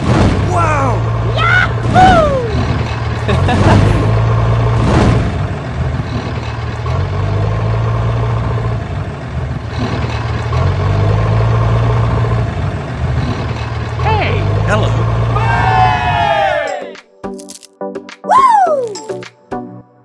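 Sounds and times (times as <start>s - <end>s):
tractor engine humming: 0.0s - 16.6s.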